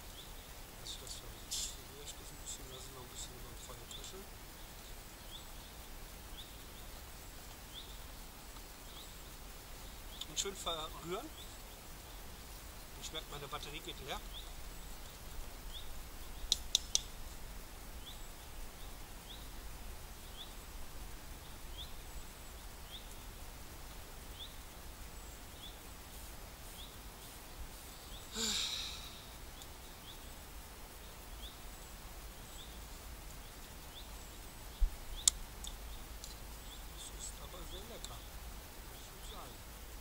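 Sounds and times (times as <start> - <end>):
woodland background: 0.0 - 40.0
breathy puff: 28.3 - 29.3.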